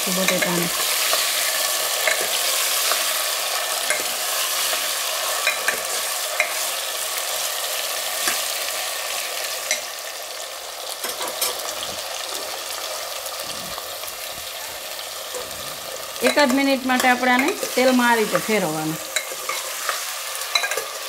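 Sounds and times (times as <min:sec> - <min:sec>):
potatoes sizzling in hot oil: 0:00.0 - 0:21.0
steel spoon clinking against pot: 0:02.0 - 0:03.1, 0:03.8 - 0:04.2, 0:05.4 - 0:06.6, 0:19.1 - 0:21.0.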